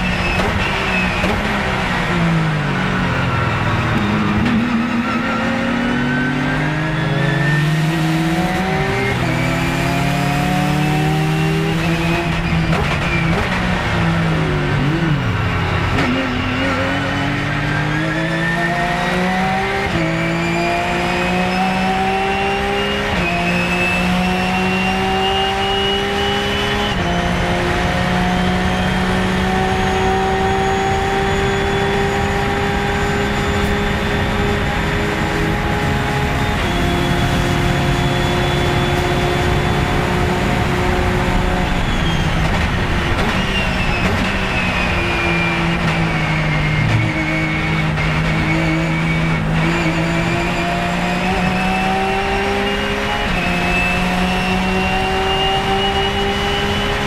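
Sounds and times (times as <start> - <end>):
race car engine at full throttle: 0.0 - 57.0
sharp gear upshifts: 14.8 - 57.0.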